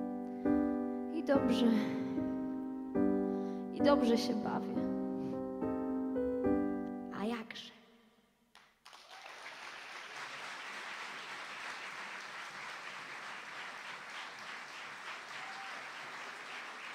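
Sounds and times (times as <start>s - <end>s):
audience applauding: 8.8s - 16.9s.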